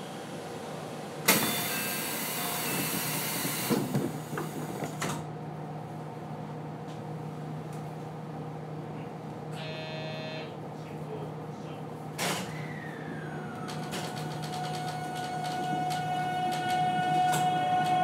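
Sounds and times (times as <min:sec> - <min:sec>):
train low hum: 0:00.0 - 0:18.0
train doors thumping shut: 0:12.2 - 0:12.6.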